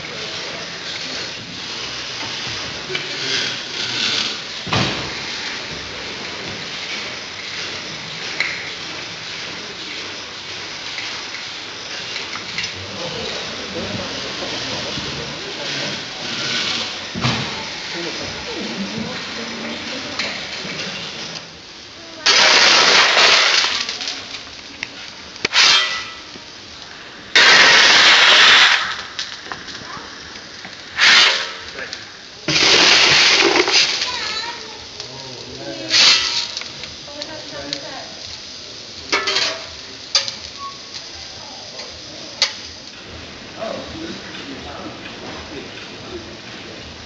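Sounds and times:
steam engine hissing: 0.0s - 47.0s
shovel scraping through coal: 0.8s - 4.5s, 14.4s - 17.1s, 22.3s - 24.0s, 25.4s - 26.3s, 27.4s - 29.0s, 30.9s - 31.9s, 32.5s - 34.2s, 35.8s - 36.6s.

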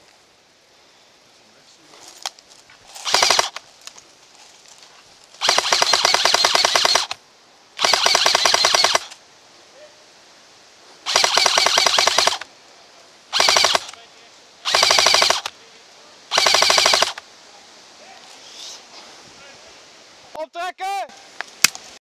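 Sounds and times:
airsoft gun firing bursts: 3.0s - 3.6s, 5.4s - 7.2s, 7.8s - 9.1s, 11.1s - 12.5s, 13.3s - 14.0s, 14.6s - 15.5s, 16.3s - 17.2s.

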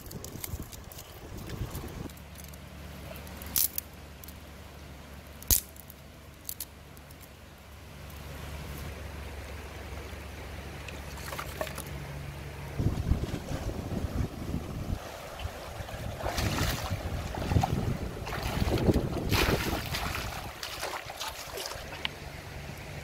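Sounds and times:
steady low background rush: 0.0s - 23.0s
sticks snapping by hand: 5.4s - 7.3s.

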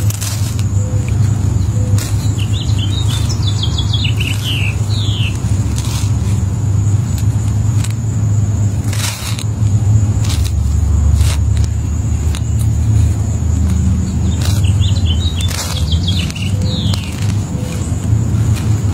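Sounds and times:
steady low rumble: 0.0s - 18.9s
bird chirping: 0.6s - 6.3s, 11.7s - 18.9s.

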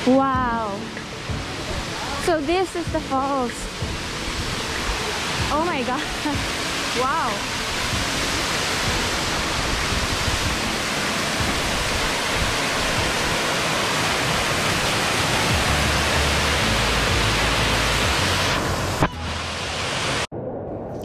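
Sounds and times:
waterfall rushing: 0.0s - 20.3s.

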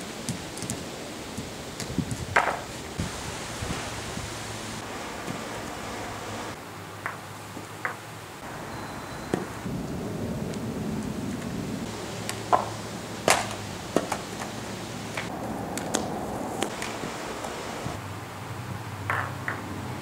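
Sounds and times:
juggling clubs slapping and knocking: 0.0s - 3.0s, 7.0s - 8.0s, 12.2s - 17.6s, 19.1s - 19.7s
outdoor background noise: 0.0s - 20.0s.

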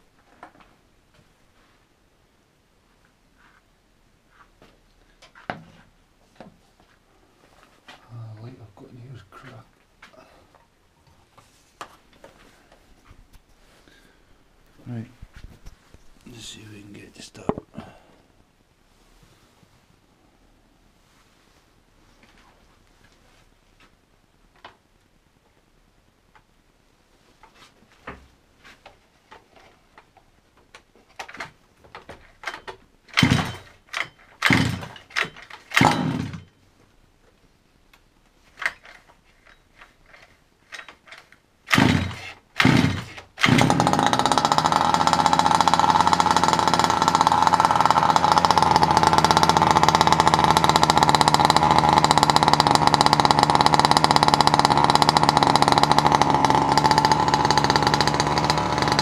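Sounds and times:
engine cranking: 32.3s - 36.5s, 38.6s - 59.0s
small two-stroke engine running: 33.1s - 36.5s, 41.7s - 59.0s.

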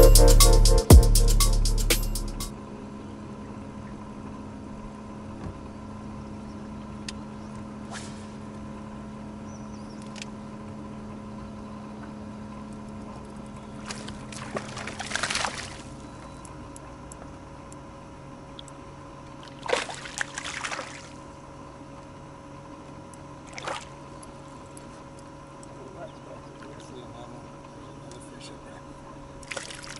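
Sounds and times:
electric boat motor humming: 2.6s - 14.3s
splashing and knocks: 13.8s - 15.8s, 29.4s - 29.9s
water noise: 29.4s - 29.9s.

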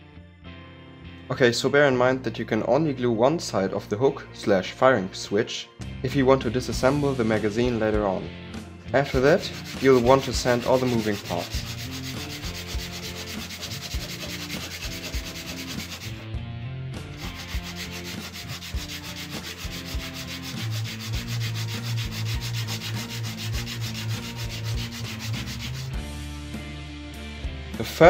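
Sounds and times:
wood rubbing on sandpaper: 9.2s - 16.2s, 17.2s - 26.0s.

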